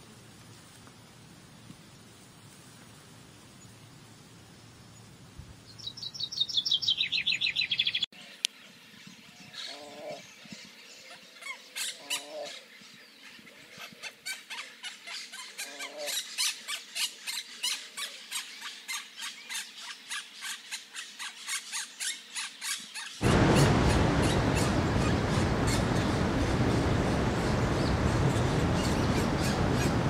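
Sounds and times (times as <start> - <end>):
songbirds chipping: 3.5 - 30.0
low drawn-out bird calls: 9.4 - 19.1, 21.3 - 30.0.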